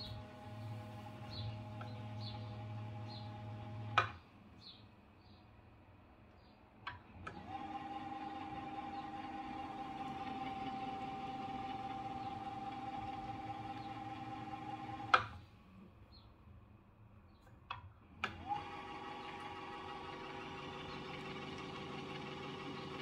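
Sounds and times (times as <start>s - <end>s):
electric motor whining: 0.0s - 4.2s, 7.3s - 15.4s, 18.3s - 23.0s.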